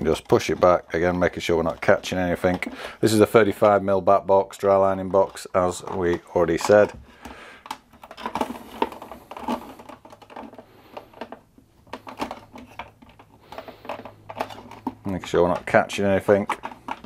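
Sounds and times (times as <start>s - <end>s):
plastic clicks and knocks: 0.0s - 4.0s, 4.7s - 17.0s
cables shifting: 0.0s - 17.0s.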